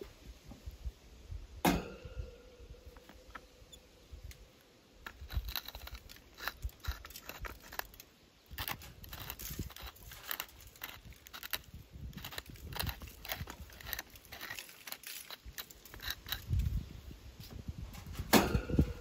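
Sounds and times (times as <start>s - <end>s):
crinkling and rustling: 5.0s - 19.0s.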